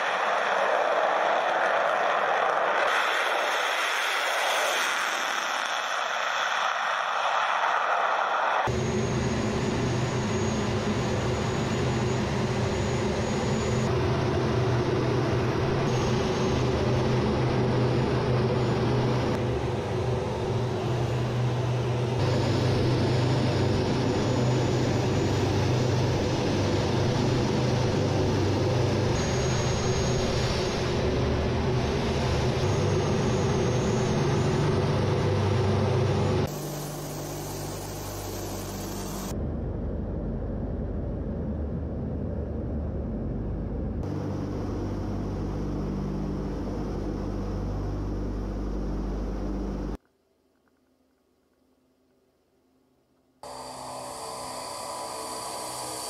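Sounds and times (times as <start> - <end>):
jet engine and airflow noise: 0.0 - 50.0, 53.4 - 56.0
low hum: 8.7 - 50.3.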